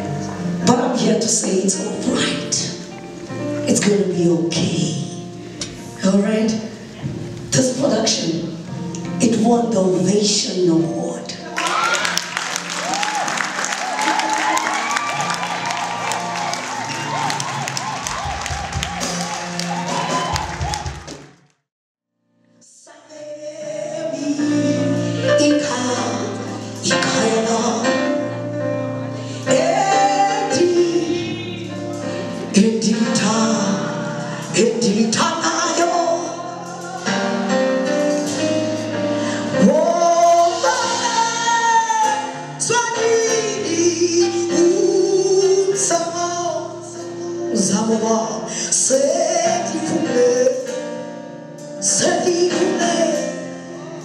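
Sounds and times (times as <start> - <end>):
band playing: 11.5 - 21.5
gospel choir singing: 12.1 - 20.8, 29.4 - 31.8, 35.1 - 38.3.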